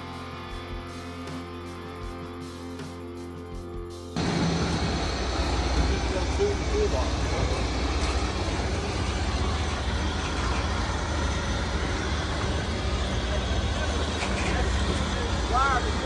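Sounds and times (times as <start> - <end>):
diesel truck engine running: 4.2 - 16.0.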